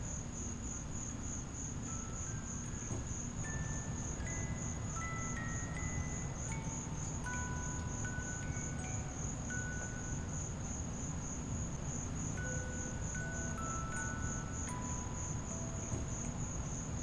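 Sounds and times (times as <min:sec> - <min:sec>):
insects trilling: 0:00.1 - 0:17.0
chime-like notes: 0:03.5 - 0:10.9, 0:12.3 - 0:17.0.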